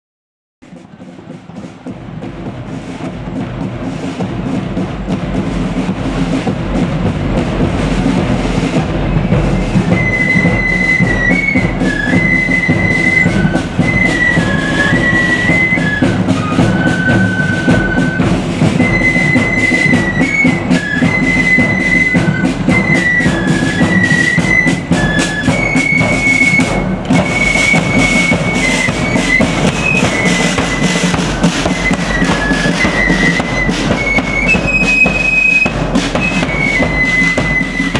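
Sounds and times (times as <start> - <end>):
side drums beating a march: 0.6 - 37.9
flutes playing a tune: 0.7 - 37.9.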